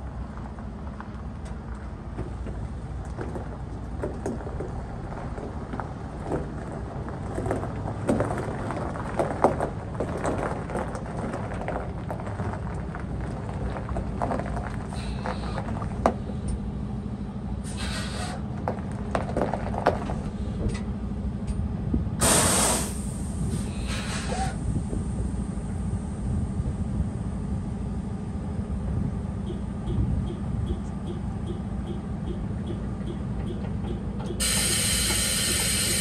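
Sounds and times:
diesel trucks idling: 0.0s - 36.0s
air hiss bursts: 17.7s - 18.4s, 22.2s - 24.6s, 34.4s - 36.0s.

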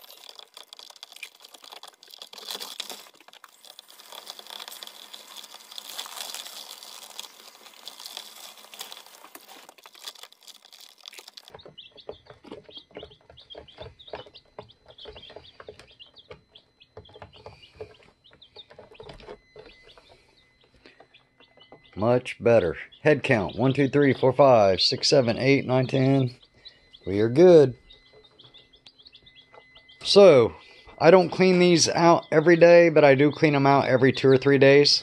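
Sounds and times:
plastic feeder rustling and scraping: 0.0s - 11.6s
chicks pecking at feed: 0.0s - 34.9s
baby chicks peeping: 0.0s - 35.0s.

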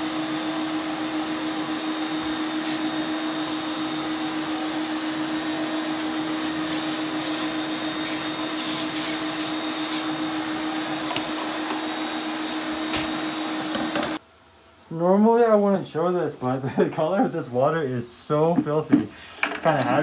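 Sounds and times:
pump sprayer hissing: 0.0s - 12.4s
vacuum motor humming: 0.0s - 14.2s.

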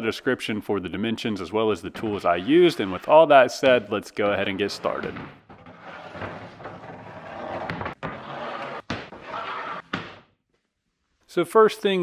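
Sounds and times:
wood scraping on wood: 2.0s - 10.2s.

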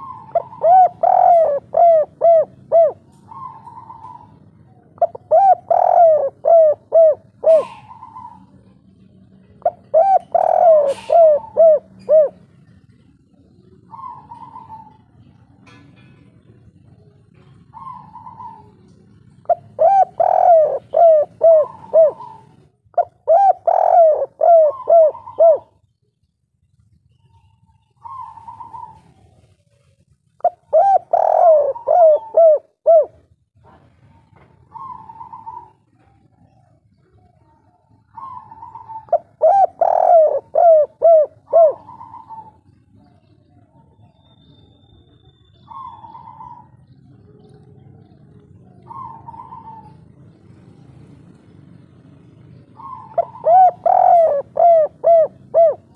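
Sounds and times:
dove cooing: 0.0s - 26.2s, 27.1s - 55.9s.

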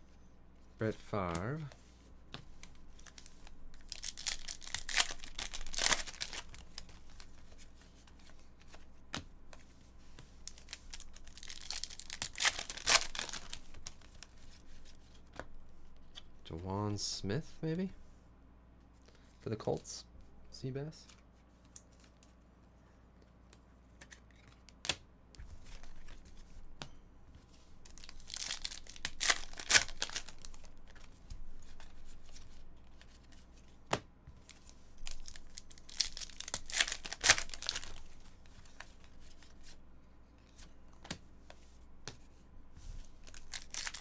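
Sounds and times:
foil wrappers tearing and crinkling: 3.8s - 6.6s, 10.5s - 13.8s, 27.9s - 30.7s, 35.0s - 38.1s, 43.2s - 44.0s.

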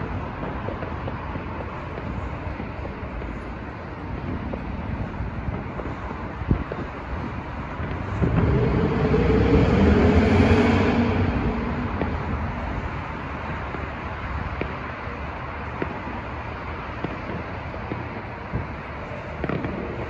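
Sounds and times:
distant fireworks pops: 0.0s - 9.1s, 10.8s - 20.0s
street noise: 0.0s - 20.0s
vehicle driving past: 7.8s - 14.4s.

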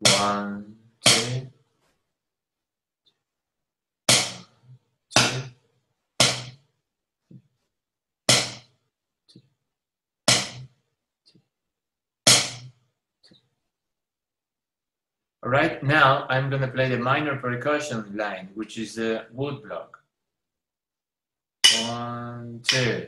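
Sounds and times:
drum practice pad hits: 0.0s - 0.4s, 1.0s - 1.4s, 4.1s - 4.4s, 5.2s - 5.5s, 6.2s - 6.6s, 8.3s - 8.6s, 10.3s - 10.6s, 12.3s - 12.7s, 21.6s - 22.0s.

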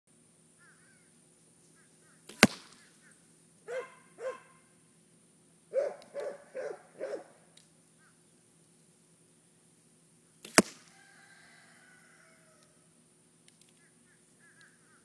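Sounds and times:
arrow striking target: 2.3s - 2.9s, 10.4s - 10.9s
dog barking: 3.7s - 4.6s, 5.7s - 7.4s.

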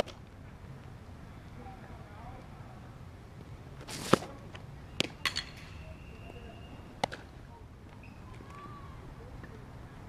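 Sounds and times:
ball popping into catcher's mitt: 7.0s - 7.3s.

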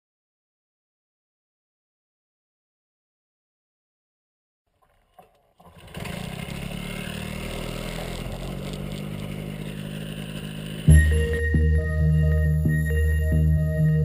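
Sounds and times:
engine and propeller running: 5.6s - 11.8s
loud music: 10.9s - 14.0s.

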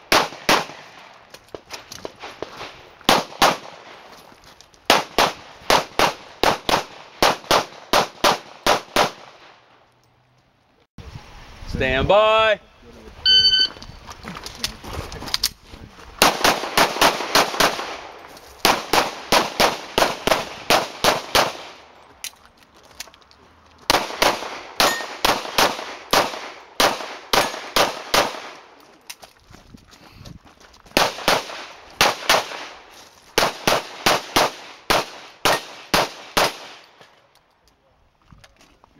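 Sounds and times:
pistol shots: 0.1s - 1.0s, 3.1s - 3.9s, 4.9s - 9.6s, 16.2s - 21.8s, 23.9s - 28.7s, 31.0s - 32.8s, 33.4s - 36.9s.

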